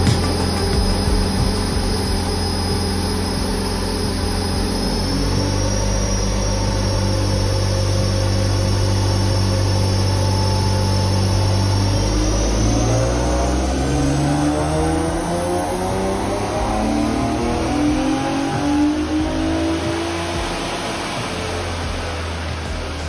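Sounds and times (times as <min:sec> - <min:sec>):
car engine running steadily: 0:00.0 - 0:23.0.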